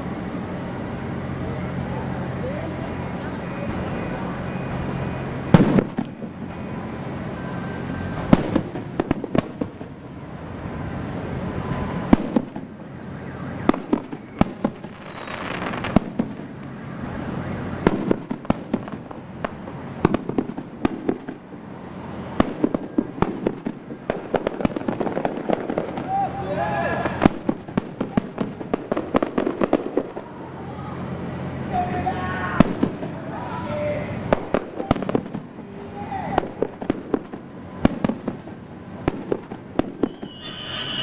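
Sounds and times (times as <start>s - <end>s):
steady wash of noise: 0.0s - 14.0s
fireworks bangs and crackles: 0.0s - 41.0s.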